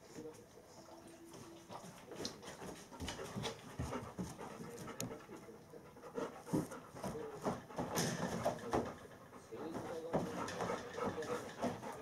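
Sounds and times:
dog panting: 0.7 - 12.0.

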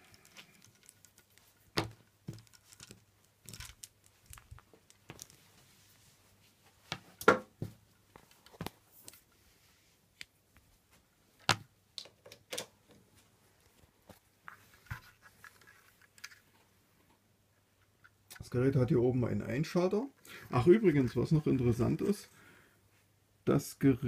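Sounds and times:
knocks and rustles of handling: 0.0 - 18.6.

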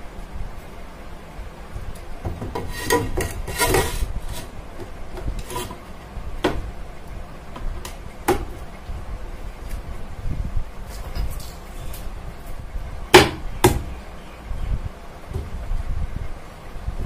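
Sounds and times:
tile scraping on wood: 2.5 - 4.5, 5.4 - 5.8.

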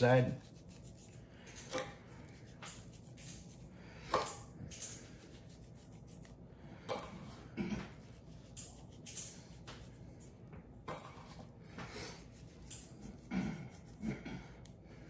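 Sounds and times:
hands rubbing raw chicken: 0.0 - 3.8, 4.7 - 6.4, 7.8 - 10.5, 12.0 - 14.0.

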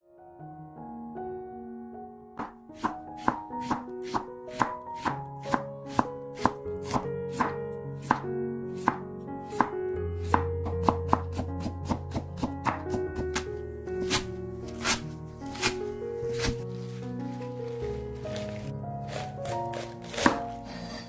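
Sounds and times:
soft background music: 0.1 - 21.0
knife chopping on wooden board: 2.4 - 16.6, 18.3 - 20.8.

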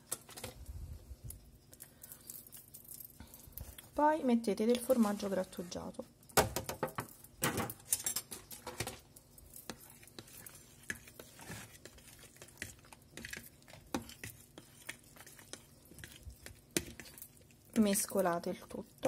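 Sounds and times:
fork scraping bowl: 9.6 - 17.5.

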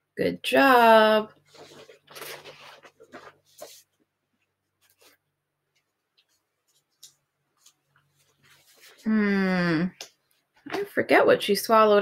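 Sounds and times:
paper rustling and scraping: 1.4 - 4.0, 4.8 - 5.3, 6.3 - 9.1.

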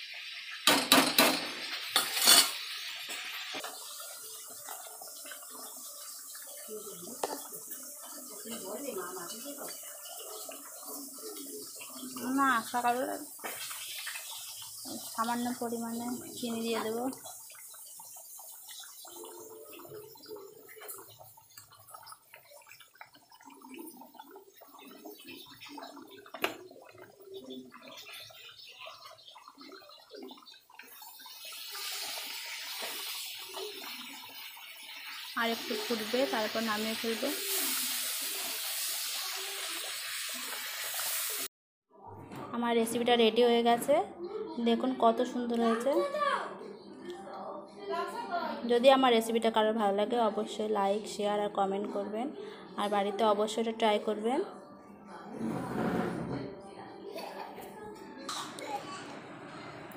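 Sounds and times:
curry bubbling: 1.7 - 41.5
spoon scraping metal pot: 55.4 - 56.5.

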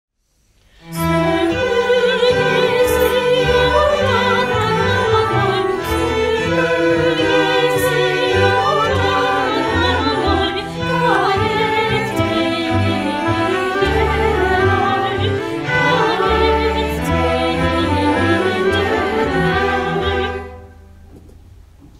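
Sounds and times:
string orchestra: 0.7 - 21.2
clarinet: 0.8 - 21.0
choir singing: 0.9 - 20.8.

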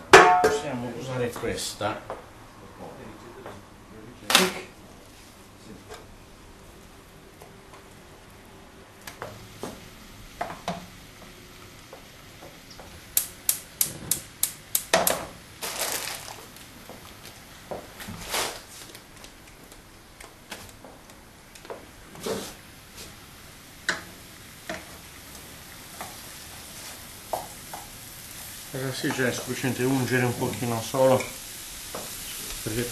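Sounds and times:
cookware knocking: 0.2 - 0.6
gas igniter clicking: 13.1 - 15.2.

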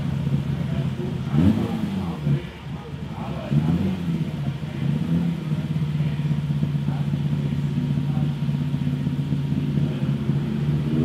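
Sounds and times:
car engine running at low revs: 0.0 - 11.0.

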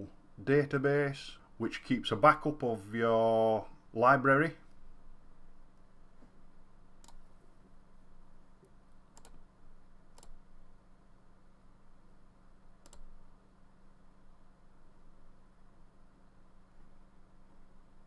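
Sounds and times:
faint steady hum: 0.0 - 18.0
computer mouse clicks: 7.0 - 7.7, 8.6 - 9.5, 10.1 - 10.4, 12.8 - 13.2.

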